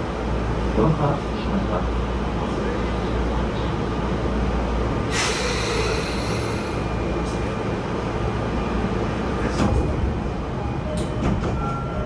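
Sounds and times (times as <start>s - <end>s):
train car hum and rumble: 0.0s - 12.0s
compressed air hiss: 5.1s - 6.7s.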